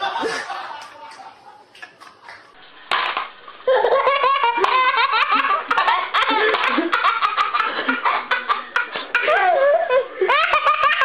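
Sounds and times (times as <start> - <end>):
people laughing: 0.0 - 2.6, 3.7 - 11.0.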